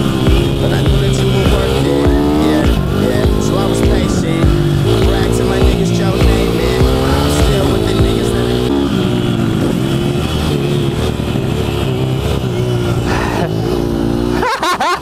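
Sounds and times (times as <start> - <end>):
motorbike engine revving: 0.0 - 15.0.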